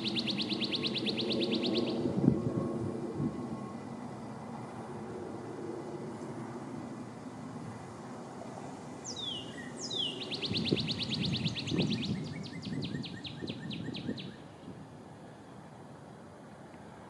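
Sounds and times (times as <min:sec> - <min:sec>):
cardinal singing whistles: 0:00.0 - 0:02.6, 0:09.1 - 0:14.4.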